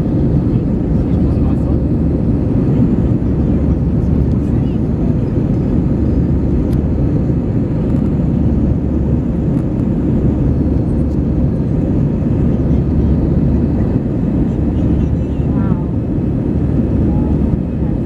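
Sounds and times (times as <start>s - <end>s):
jet engine noise in cabin: 0.0s - 18.0s.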